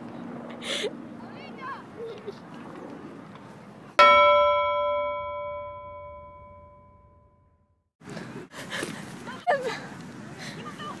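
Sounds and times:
chime ringing: 4.0s - 7.5s.

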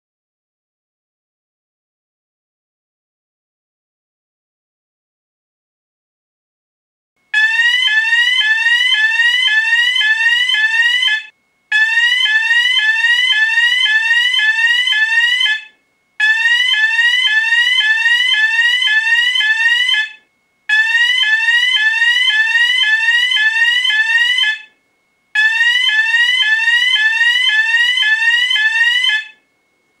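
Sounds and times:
fire alarm rising chirps: 7.4s - 24.8s, 25.4s - 29.4s.

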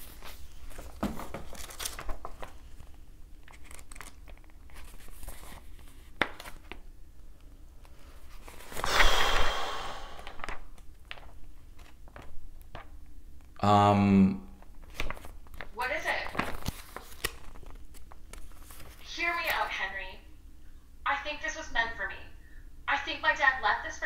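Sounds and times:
paper crinkling: 0.0s - 6.8s, 14.8s - 19.6s
paper rustling: 0.0s - 6.8s, 10.4s - 12.9s, 14.8s - 19.7s.

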